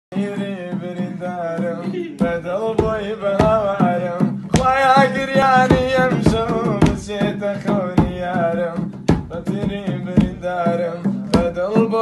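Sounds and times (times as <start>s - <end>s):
person singing: 0.1s - 12.0s
steady drum beat: 0.1s - 12.0s.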